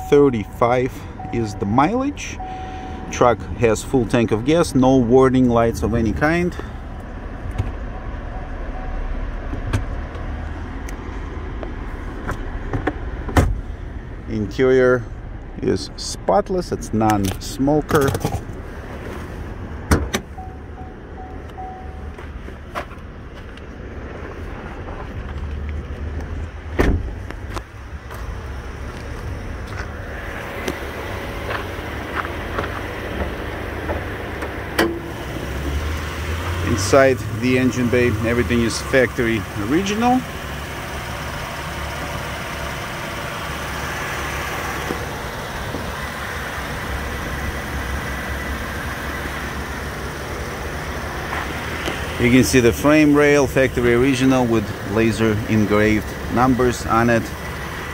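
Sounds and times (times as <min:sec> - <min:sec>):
car engine idling: 0:00.0 - 0:57.9
car door shutting: 0:12.2 - 0:13.6, 0:18.0 - 0:20.4, 0:26.7 - 0:27.3, 0:32.2 - 0:35.2.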